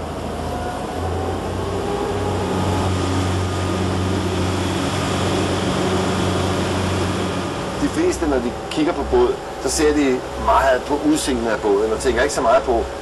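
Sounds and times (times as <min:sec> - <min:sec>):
motorboat engine drone: 0:00.0 - 0:13.0
water rushing along hull: 0:00.0 - 0:13.0.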